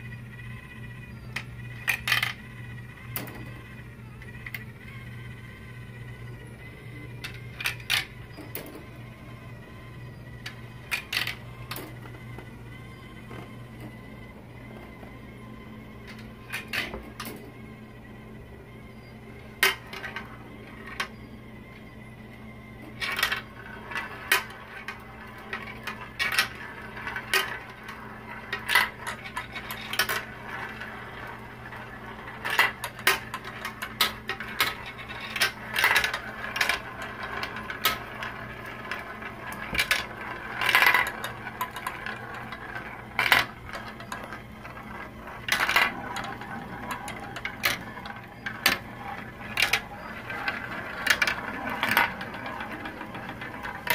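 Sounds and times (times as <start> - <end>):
marbles clattering down plastic run: 0.0 - 53.9
steady low hum: 0.0 - 53.9.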